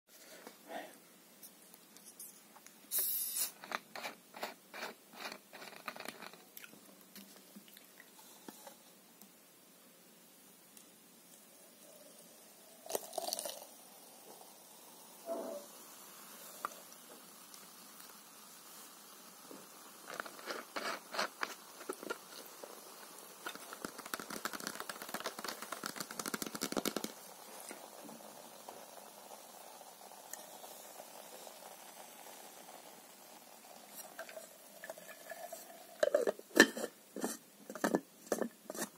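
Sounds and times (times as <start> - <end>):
gas hissing from bottle: 2.2 - 6.4, 11.3 - 38.9
plastic bottle crackling: 3.4 - 6.5, 20.0 - 27.3.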